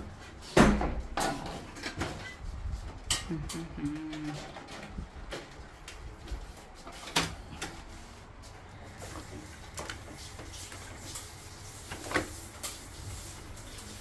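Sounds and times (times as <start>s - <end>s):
low steady hum: 2.5s - 8.9s.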